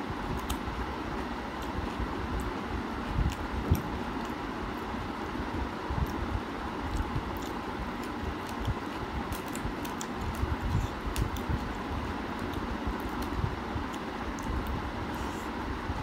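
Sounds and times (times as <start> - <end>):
low background rumble: 0.0 - 16.0
chewing clicks and smacks: 1.5 - 4.4, 6.8 - 14.8.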